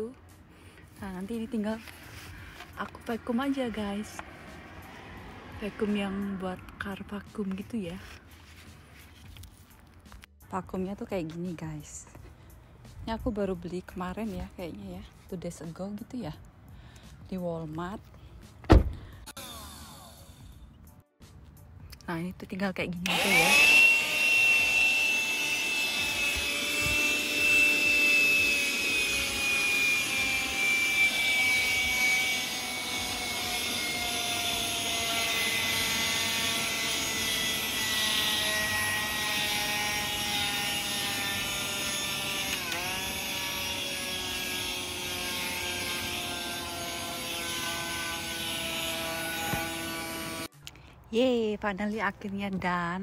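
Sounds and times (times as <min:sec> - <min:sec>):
handheld vacuum motor whine: 0:19.3 - 0:20.6, 0:23.0 - 0:50.5.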